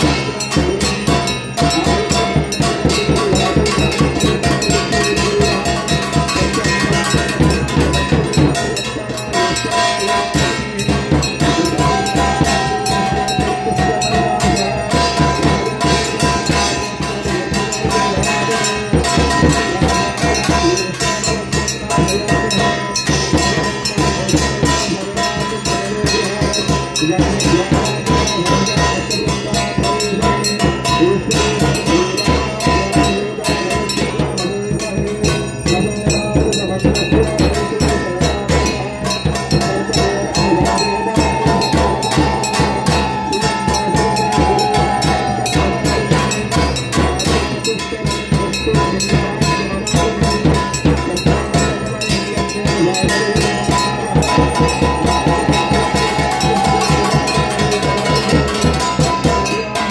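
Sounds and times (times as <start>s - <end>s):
bells ringing: 0.0s - 59.9s
fast drumming and percussion: 0.0s - 59.9s
sustained held tone: 39.7s - 46.4s.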